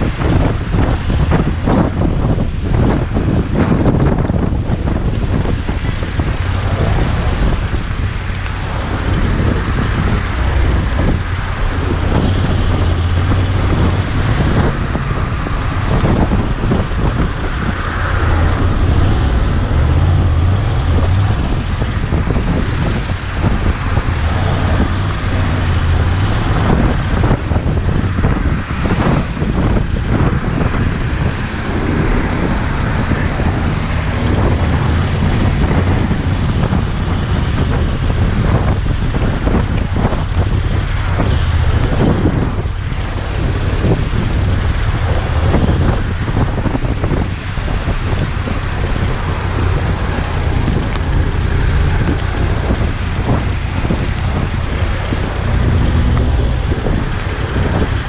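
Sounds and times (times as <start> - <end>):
road and traffic noise: 0.0 - 58.0
wind noise on microphone: 0.0 - 58.0
motorcycle engine running: 6.1 - 28.3, 40.5 - 58.0.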